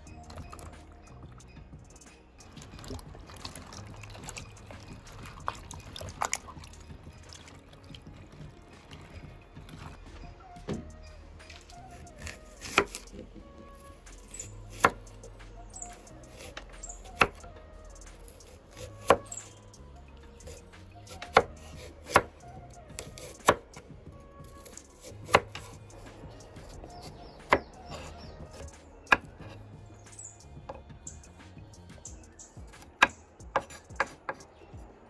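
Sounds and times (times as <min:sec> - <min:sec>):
knife chopping on wooden board: 0:12.2 - 0:13.1, 0:14.7 - 0:15.0, 0:18.4 - 0:19.3, 0:21.1 - 0:22.3, 0:23.0 - 0:23.6, 0:24.6 - 0:25.8.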